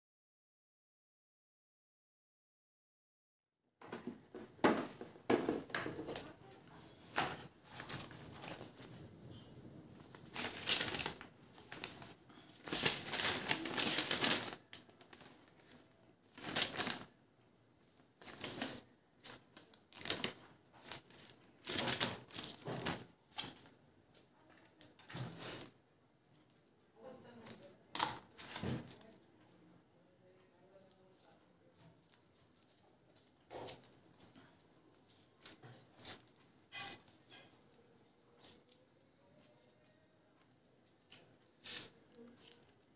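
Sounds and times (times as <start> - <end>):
paper leaflet rustling: 7.2 - 17.1, 18.2 - 23.7.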